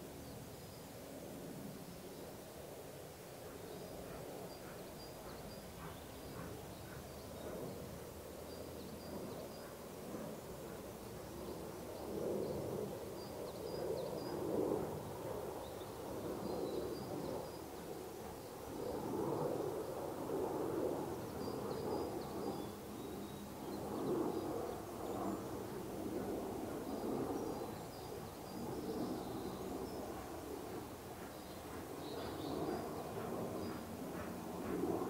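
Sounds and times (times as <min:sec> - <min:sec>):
distant steam locomotive chuffing: 0:31.2 - 0:34.8.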